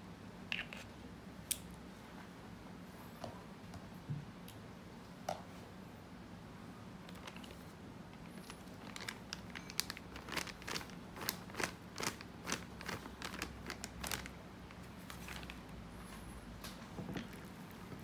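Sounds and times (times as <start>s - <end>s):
low steady hum: 0.0s - 18.0s
plastic bag crinkling: 8.2s - 15.7s.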